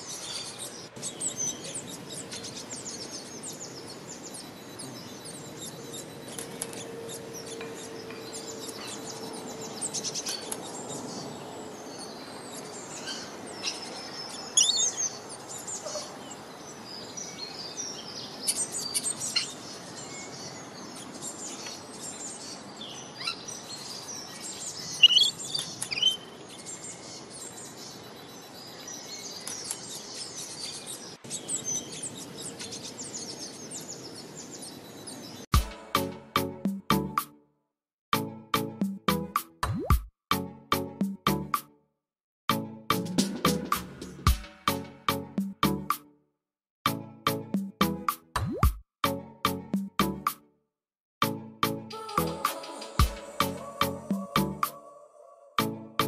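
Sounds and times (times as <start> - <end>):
birds chirping: 0.0 - 37.2.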